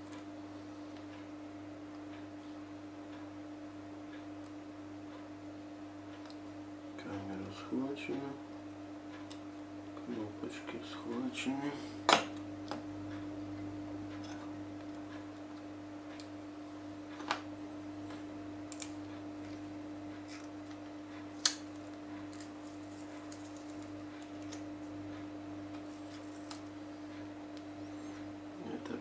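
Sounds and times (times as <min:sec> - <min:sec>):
steady hum: 0:00.0 - 0:29.0.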